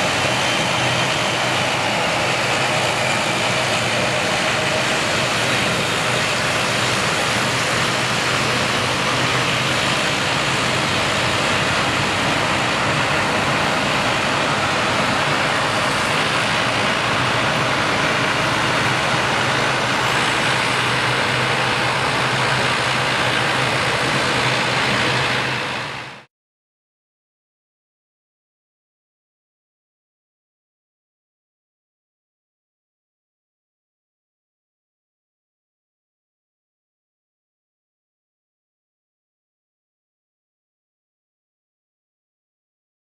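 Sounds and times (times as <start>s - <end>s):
turboprop engines droning: 0.0s - 26.3s.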